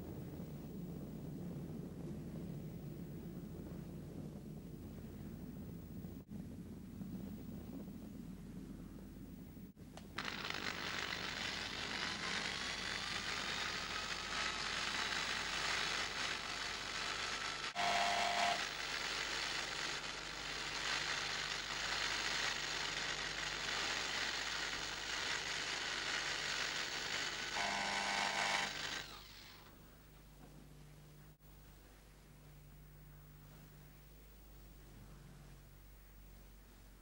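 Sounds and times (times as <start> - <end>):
electric hand drill whining: 10.1 - 29.7.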